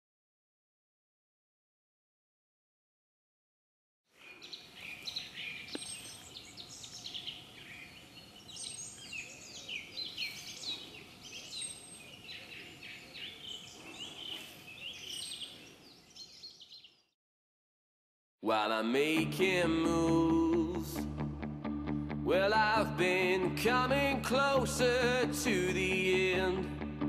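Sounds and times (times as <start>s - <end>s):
songbirds chirping and trilling: 4.1s - 17.2s.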